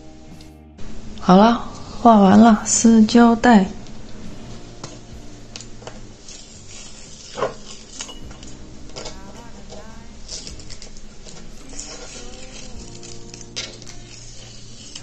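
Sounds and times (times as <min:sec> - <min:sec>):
masking tape peeling off paper: 0:04.4 - 0:15.0.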